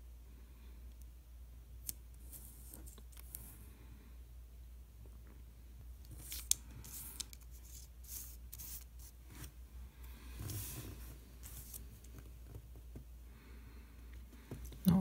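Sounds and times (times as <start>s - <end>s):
sealant tube rubbing and rustling: 6.1s - 9.6s, 10.3s - 12.6s.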